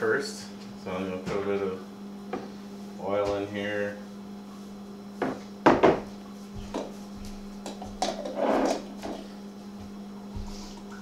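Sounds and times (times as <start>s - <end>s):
mains hum: 0.0s - 11.0s
bottle and dish knocking on counter: 5.2s - 6.1s.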